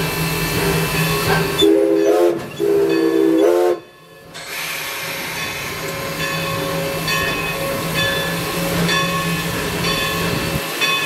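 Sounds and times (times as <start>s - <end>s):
locomotive cab hiss and hum: 0.0s - 11.0s
steam whistle blasts: 1.4s - 3.9s.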